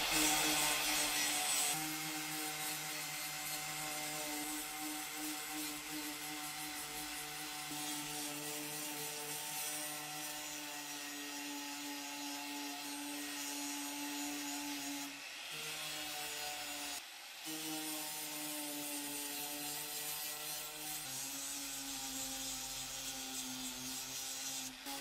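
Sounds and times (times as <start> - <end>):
sanding disc rasping on metal: 0.0 - 25.0.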